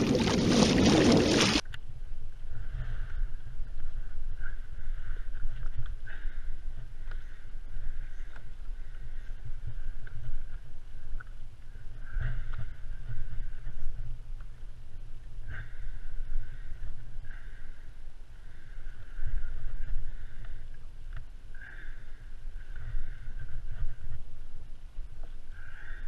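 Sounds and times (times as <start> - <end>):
water slapping plastic hull: 0.0 - 1.6
wind buffeting microphone: 0.0 - 1.6.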